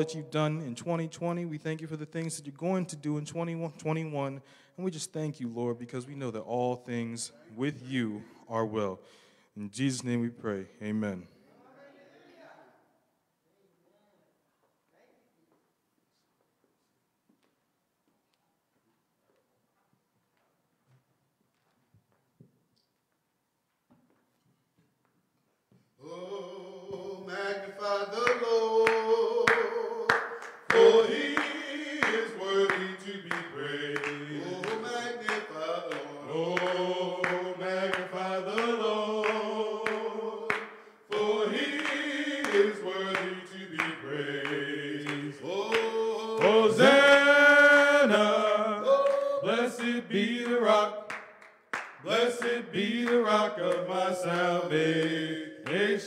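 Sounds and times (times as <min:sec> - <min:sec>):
men singing in harmony: 0:26.0 - 0:51.2, 0:52.0 - 0:56.0
hand claps: 0:28.2 - 0:47.4, 0:48.9 - 0:54.0, 0:54.8 - 0:55.9.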